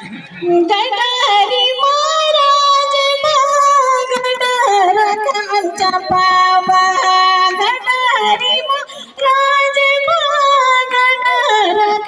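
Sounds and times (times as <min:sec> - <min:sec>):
woman singing into a microphone: 0:00.4 - 0:12.0.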